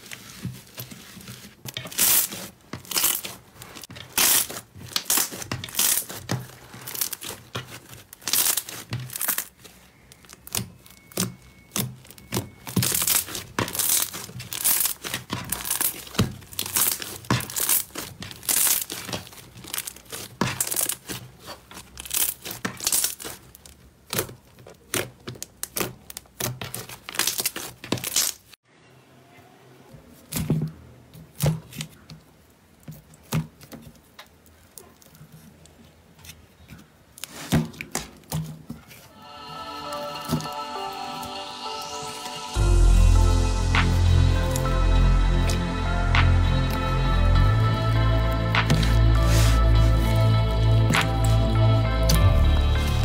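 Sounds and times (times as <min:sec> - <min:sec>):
slime crackling and tearing: 0:01.8 - 0:28.6.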